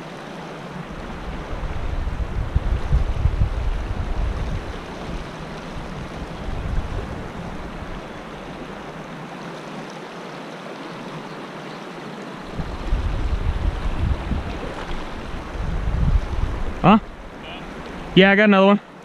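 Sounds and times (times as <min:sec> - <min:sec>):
river rushing over rocks: 0:00.0 - 0:19.0
wind buffeting microphone: 0:00.8 - 0:09.2, 0:12.4 - 0:18.2.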